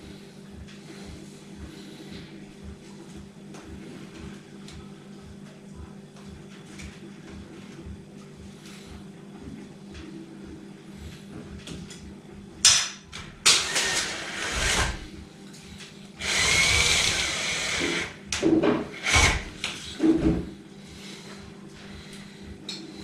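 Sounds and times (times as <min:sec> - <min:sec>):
drill-driver driving screws: 0:13.6 - 0:15.0, 0:16.2 - 0:18.1, 0:19.0 - 0:19.5.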